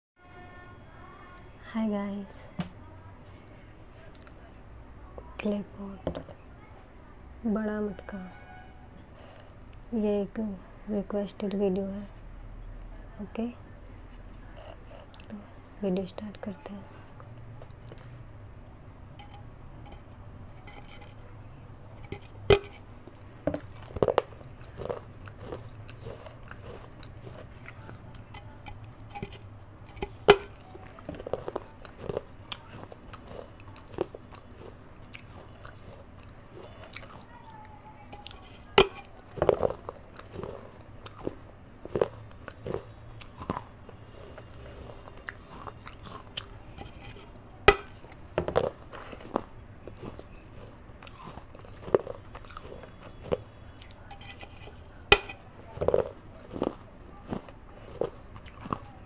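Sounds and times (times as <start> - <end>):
chewing clicks: 4.1 - 4.4, 17.2 - 18.2, 23.5 - 59.0
clay pot crunching cracks: 19.2 - 59.0.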